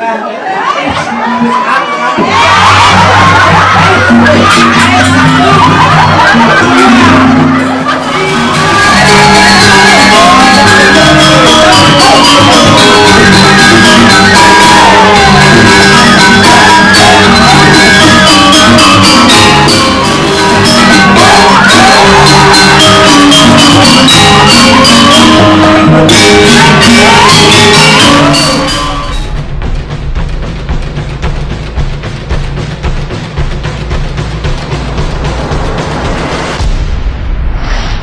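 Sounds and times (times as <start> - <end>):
voices shouting and singing: 0.0 - 29.3
fast struck percussion music: 2.2 - 37.2
held melodic tones: 3.0 - 29.8.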